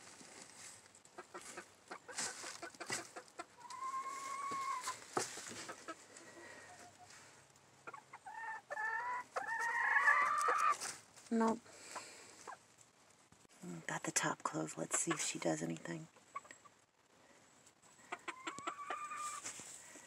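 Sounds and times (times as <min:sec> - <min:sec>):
rustling wood shavings: 0:00.0 - 0:07.4, 0:09.6 - 0:12.8, 0:19.1 - 0:20.0
hen clucking: 0:01.1 - 0:07.1, 0:07.8 - 0:10.9, 0:11.8 - 0:12.7, 0:14.8 - 0:16.8, 0:17.9 - 0:19.6
hen calling: 0:01.2 - 0:05.0, 0:18.0 - 0:19.5.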